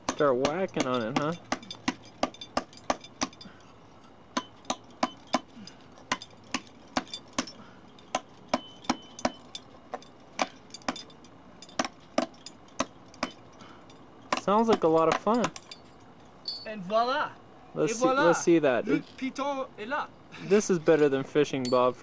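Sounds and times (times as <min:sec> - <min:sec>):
hammer striking steel piton: 0:00.0 - 0:03.5, 0:04.3 - 0:05.5, 0:06.1 - 0:09.6.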